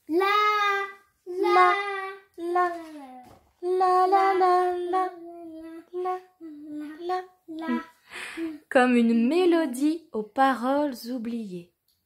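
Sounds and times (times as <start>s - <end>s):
woman singing la la la: 3.6s - 8.6s.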